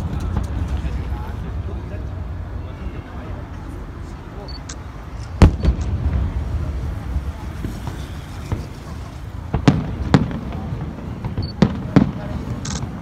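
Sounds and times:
firework shells bursting: 5.2 - 13.0
sharp bangs: 5.4 - 13.0.

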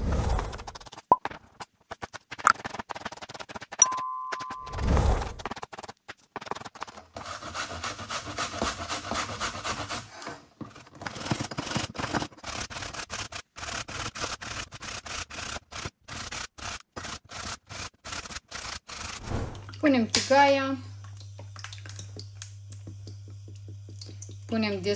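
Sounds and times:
vegetable rasping on grater: 5.4 - 19.2.

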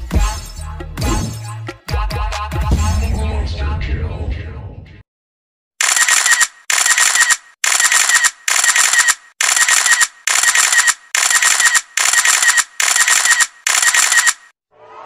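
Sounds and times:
rapid clicking bursts: 5.8 - 14.5.

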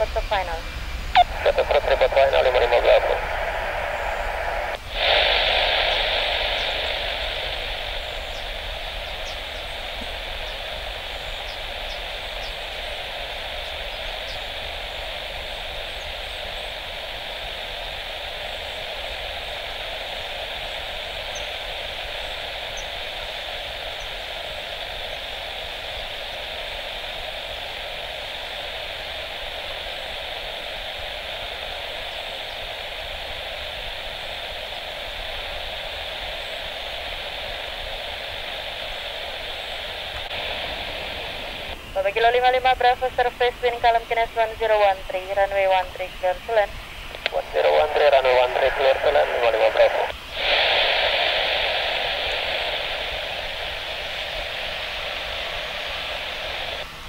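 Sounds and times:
radio click and burst: 0.0 - 24.1, 38.3 - 51.2
radio static hiss: 0.0 - 57.0.

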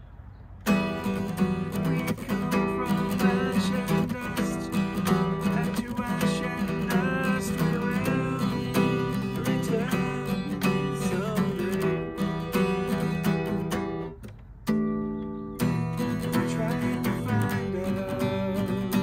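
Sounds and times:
acoustic guitar strummed and picked: 0.6 - 19.0.

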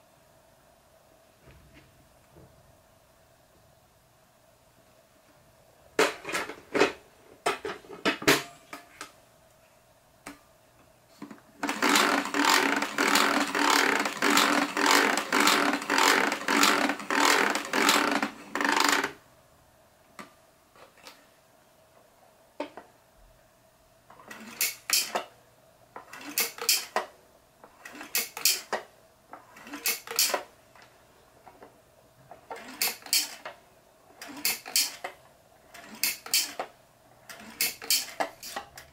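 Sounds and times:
plastic parts clicking and knocking: 11.2 - 19.2, 24.1 - 25.3, 26.0 - 27.1, 27.7 - 31.7, 32.3 - 33.6, 34.2 - 36.7, 37.3 - 38.9.

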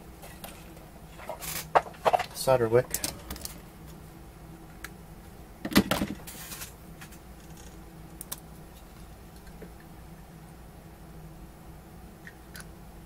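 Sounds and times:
objects clattering on workbench: 0.2 - 2.3, 5.7 - 7.6.

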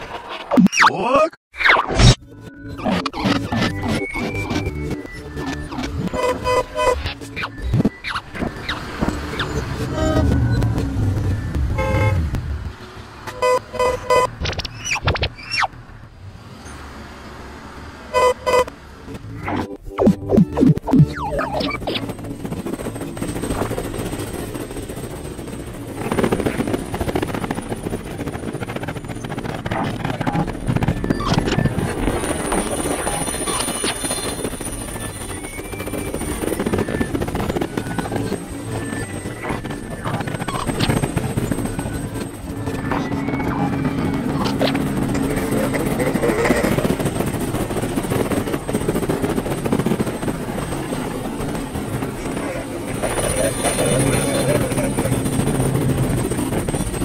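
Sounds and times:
helicopter rotor chop: 1.7 - 16.3, 16.9 - 57.0.

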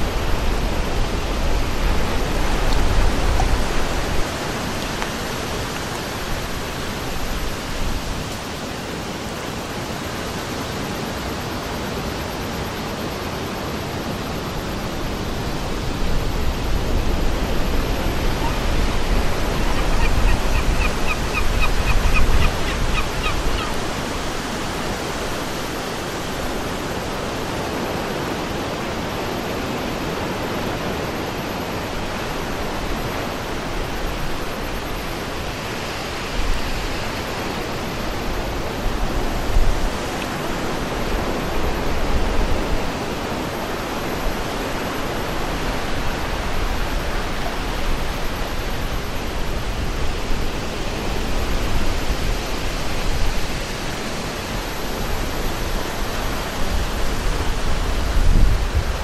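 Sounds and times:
wind buffeting microphone: 15.0 - 26.7, 54.6 - 59.0.

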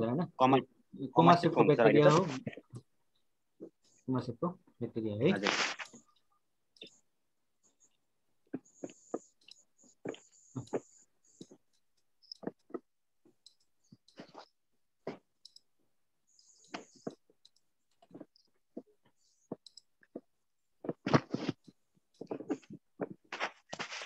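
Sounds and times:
computer mouse clicks: 19.2 - 20.2.

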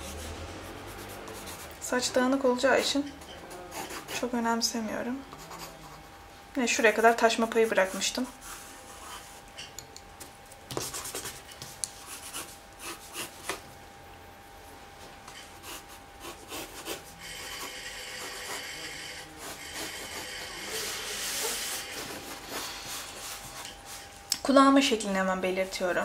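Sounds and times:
pencil sketching on paper: 0.0 - 1.8, 12.1 - 13.6, 15.6 - 24.1.

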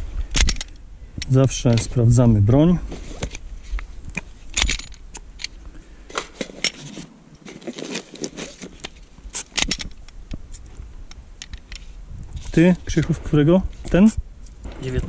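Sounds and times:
pistol parts clicking: 0.3 - 1.9, 4.1 - 6.8, 8.8 - 11.9.

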